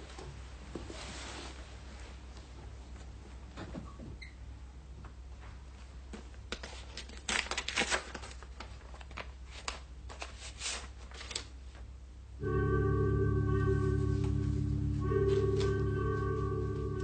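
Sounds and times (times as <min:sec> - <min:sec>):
paper rustling and crinkling: 0:06.5 - 0:11.6
low soundtrack hum: 0:12.4 - 0:17.0.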